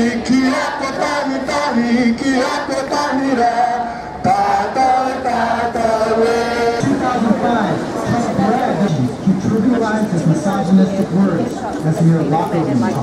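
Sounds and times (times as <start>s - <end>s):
crowd singing slow melody: 0.0s - 12.2s.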